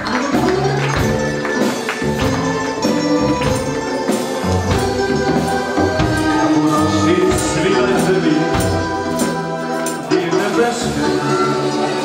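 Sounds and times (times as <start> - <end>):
people clapping along: 0.0 - 5.2
sharp percussion strikes: 0.0 - 11.9
live band playing: 0.0 - 12.0.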